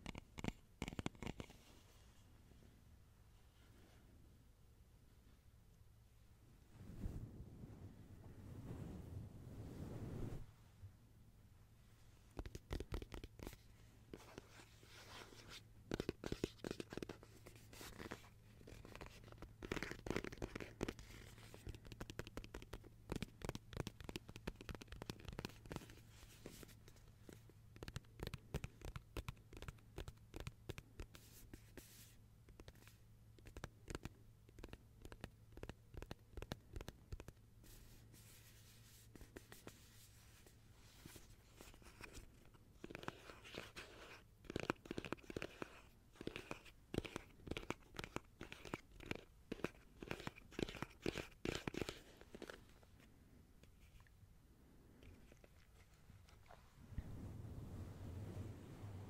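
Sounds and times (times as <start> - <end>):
faint rapid clicks and crackles: 18.8 - 31.2, 32.5 - 37.4.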